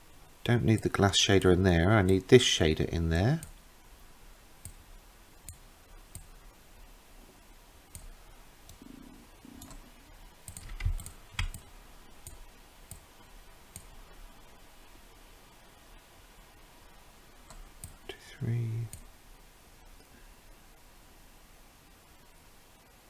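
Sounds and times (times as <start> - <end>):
computer mouse clicks: 7.9 - 13.1, 13.7 - 13.9, 17.4 - 18.0.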